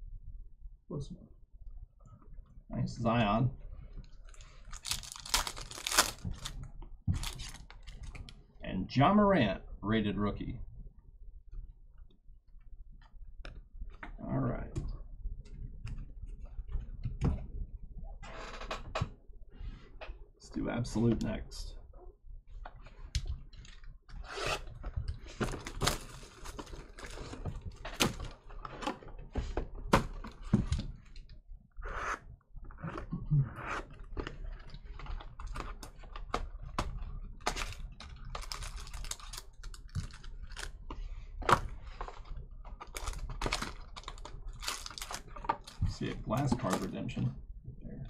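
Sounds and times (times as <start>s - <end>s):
foil packs rustling and tearing: 4.6s - 6.6s, 7.2s - 8.2s, 37.5s - 40.7s, 42.8s - 45.8s.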